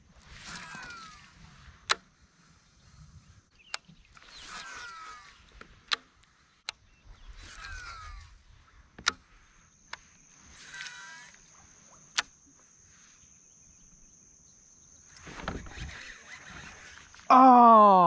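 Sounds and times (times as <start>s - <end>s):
rustle of movement: 0.0s - 14.2s, 15.0s - 17.3s
high-pitched insect buzz: 7.3s - 8.4s, 9.4s - 17.3s.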